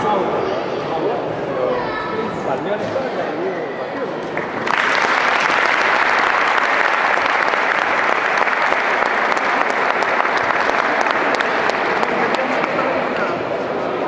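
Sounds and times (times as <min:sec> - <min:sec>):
audience applauding: 0:04.3 - 0:13.2.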